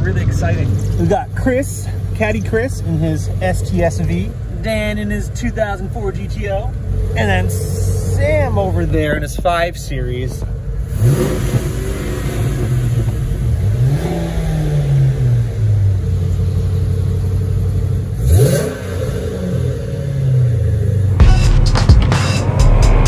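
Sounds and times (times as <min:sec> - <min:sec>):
car engine revving: 0:00.0 - 0:23.0
music with steady beat: 0:21.2 - 0:23.0.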